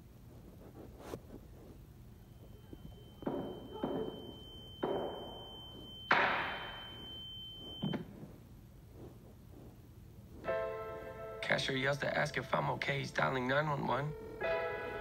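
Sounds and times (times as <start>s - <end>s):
high-pitched ringing tone: 2.1s - 8.1s, 13.6s - 15.0s
muffled bangs and thuds: 3.2s - 5.5s.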